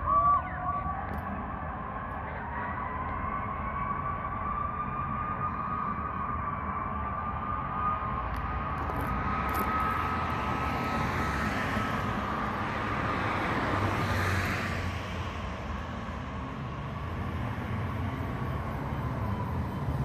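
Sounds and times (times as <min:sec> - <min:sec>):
vehicle passing: 0:08.9 - 0:20.0.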